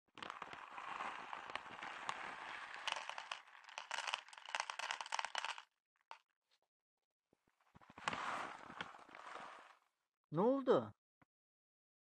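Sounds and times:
kibble pattering into plastic bowl: 0:00.2 - 0:05.6.

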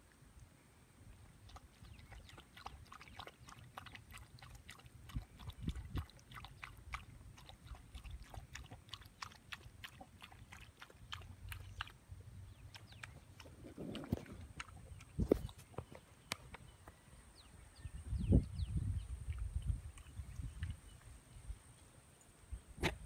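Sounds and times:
dog lapping water: 0:01.3 - 0:15.9.

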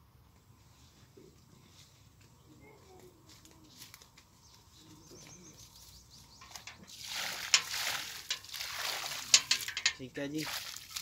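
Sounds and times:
faint bird chirps: 0:03.6 - 0:06.8
water poured onto soil: 0:06.4 - 0:11.0.

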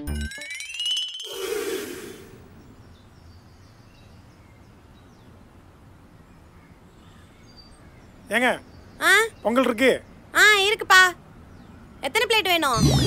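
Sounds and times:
ringing musical sound effect: 0:00.0 - 0:01.5
low street background noise: 0:02.6 - 0:12.8.

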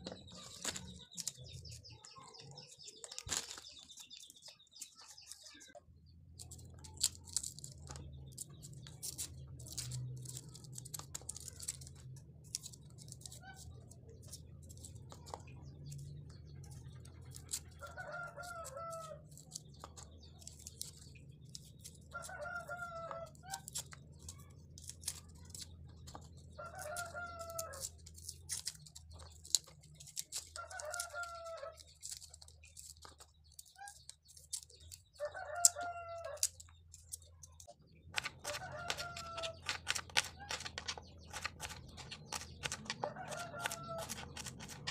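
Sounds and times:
knife clicking and scraping on board: 0:22.7 - 0:44.9.

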